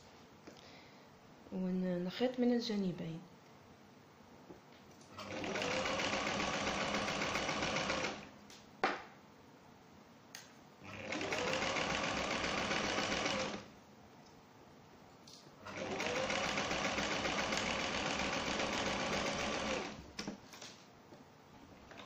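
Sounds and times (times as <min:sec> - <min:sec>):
sewing machine stitching: 0:05.1 - 0:08.3, 0:10.8 - 0:13.7, 0:15.6 - 0:20.3.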